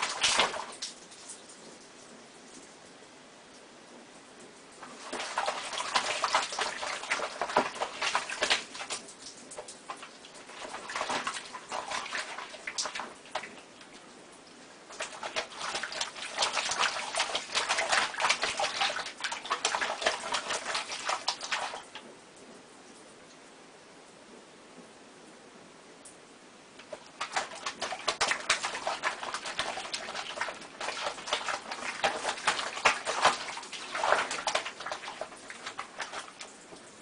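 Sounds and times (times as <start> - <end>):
cat splashing water in sink: 0.0 - 1.8, 4.8 - 22.2, 26.8 - 37.0.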